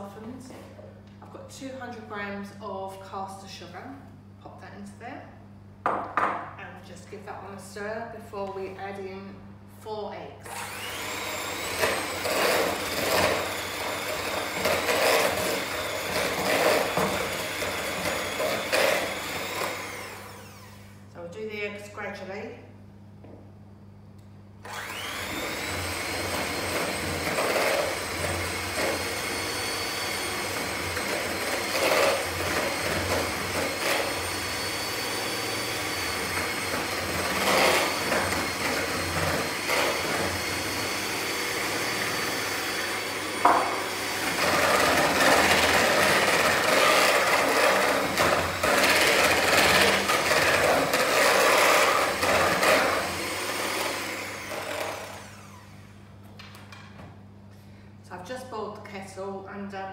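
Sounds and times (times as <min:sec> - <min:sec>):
electric mixer motor whining: 0:10.4 - 0:21.0, 0:24.6 - 0:56.0
beaters scraping mixing bowl: 0:10.5 - 0:20.5, 0:24.7 - 0:55.5.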